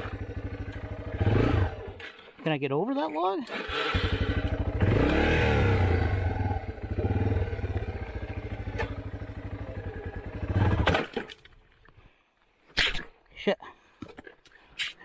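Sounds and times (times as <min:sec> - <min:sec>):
dirt bike engine with throttle blips: 0:00.0 - 0:02.4, 0:03.4 - 0:11.4.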